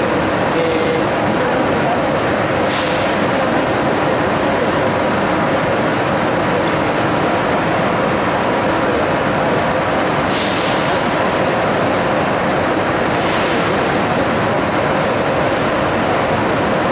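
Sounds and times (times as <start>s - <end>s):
train humming and rumbling: 0.0s - 16.9s
sharp hiss of air: 2.6s - 3.2s, 10.3s - 11.0s.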